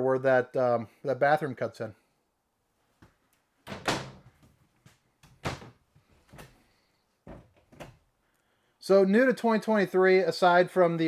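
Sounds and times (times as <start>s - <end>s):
cabinet doors opening and shutting: 3.6s - 4.5s, 5.3s - 6.6s, 7.3s - 8.0s.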